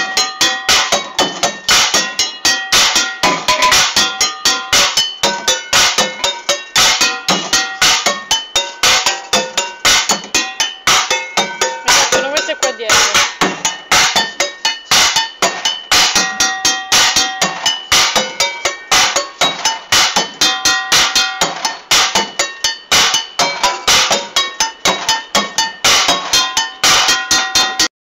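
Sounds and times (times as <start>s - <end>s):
drumsticks beating cooking pots: 0.0s - 27.9s.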